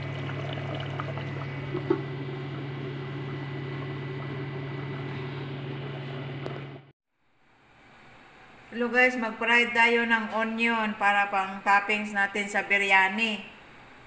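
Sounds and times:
low machine hum: 0.0s - 6.9s.

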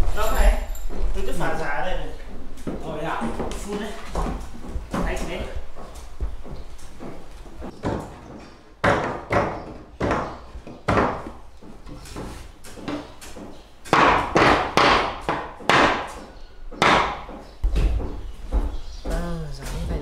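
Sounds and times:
sharp knocks on wood: 6.2s - 18.8s.

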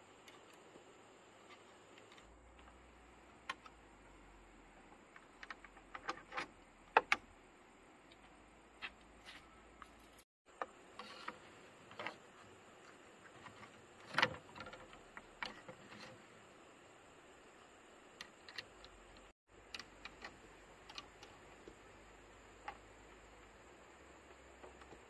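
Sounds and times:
clicks and taps on bamboo poles: 5.1s - 7.2s, 8.1s - 16.2s, 18.2s - 21.9s, 22.5s - 23.1s, 24.2s - 25.0s.

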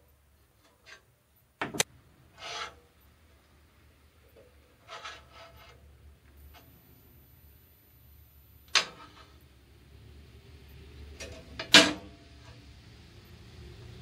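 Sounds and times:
scraping rubs on steel table: 2.4s - 2.8s, 4.8s - 5.9s.

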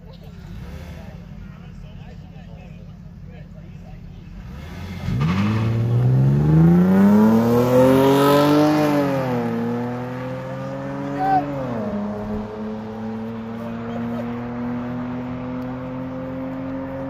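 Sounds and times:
car engines revving: 0.0s - 17.0s.

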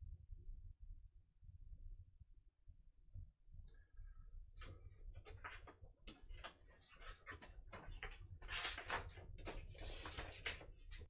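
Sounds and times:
record sleeve sliding and rustling: 5.3s - 11.0s.

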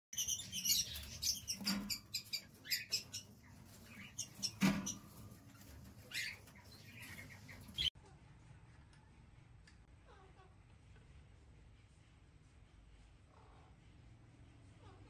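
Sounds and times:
lovebirds chirping: 0.1s - 7.9s.

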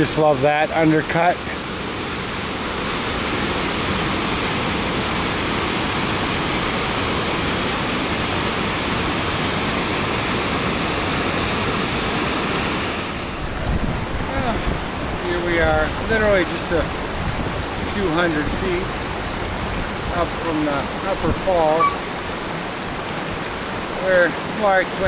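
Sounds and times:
waterfall pouring into a pool: 0.0s - 13.4s, 20.1s - 25.0s.

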